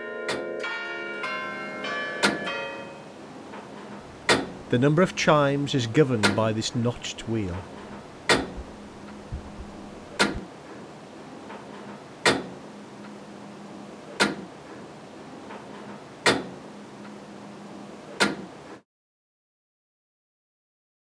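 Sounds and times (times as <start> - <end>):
steady low hum: 3.1 - 18.7.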